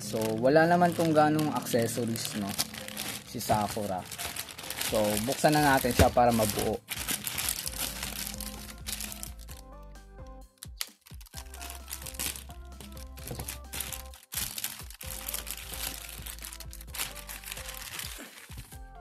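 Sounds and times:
plastic bag crinkling: 0.0 - 9.6, 10.6 - 18.7
background music: 0.0 - 19.0.

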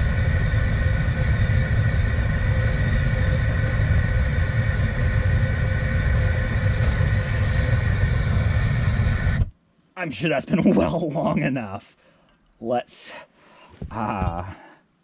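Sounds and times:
gas torch roaring: 0.0 - 9.6.

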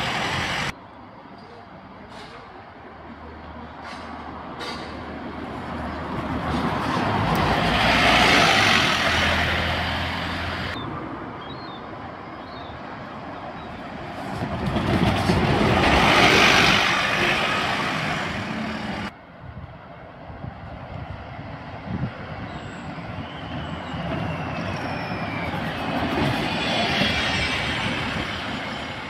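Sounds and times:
buses driving past: 0.0 - 29.0
street traffic: 0.0 - 29.0.

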